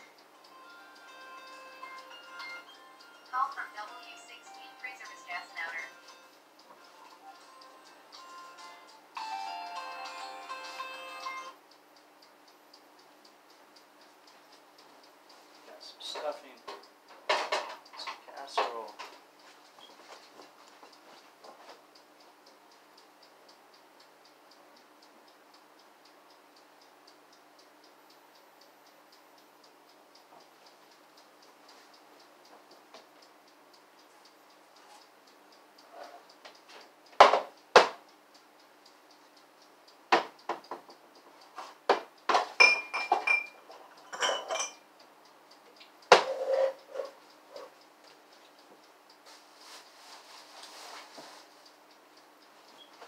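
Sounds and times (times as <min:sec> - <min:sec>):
clock ticking faintly: 0:00.0 - 0:53.0
kitchenware clattering: 0:44.1 - 0:44.8.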